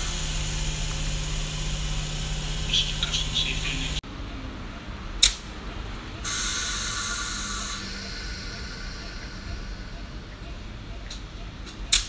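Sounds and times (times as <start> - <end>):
compressed air hissing from train: 6.2 - 10.3.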